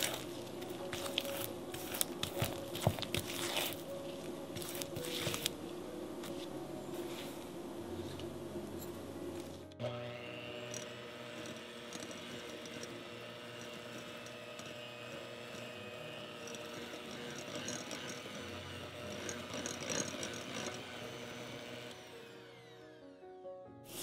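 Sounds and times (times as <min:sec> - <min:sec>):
electric hand mixer running: 0:09.8 - 0:24.0.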